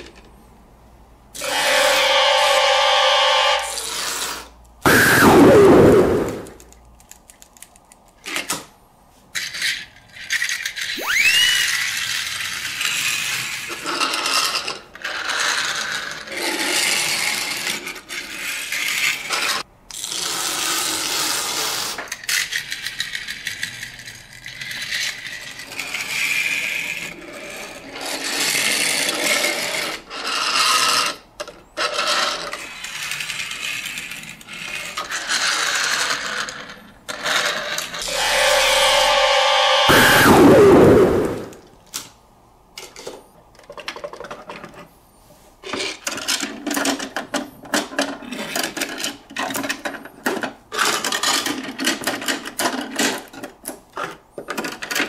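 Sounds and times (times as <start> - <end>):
loud falling sweep: 4.8 - 6.6, 11.0 - 11.8, 38.0 - 41.6
short rising whistle: 4.9 - 6.5, 11.0 - 11.8, 38.0 - 41.6
toy gear motor clattering: 9.3 - 38.9.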